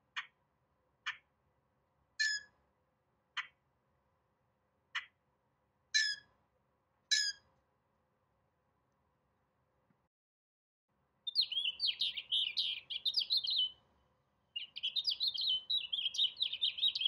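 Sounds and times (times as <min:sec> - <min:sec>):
harsh squeaky bird calls: 0:02.2 - 0:02.5, 0:06.0 - 0:06.3, 0:07.1 - 0:07.4, 0:11.3 - 0:13.8, 0:14.6 - 0:17.0.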